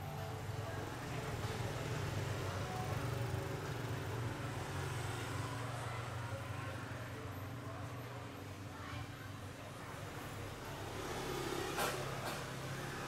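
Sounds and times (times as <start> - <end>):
road vehicle passing: 10.3 - 13.0.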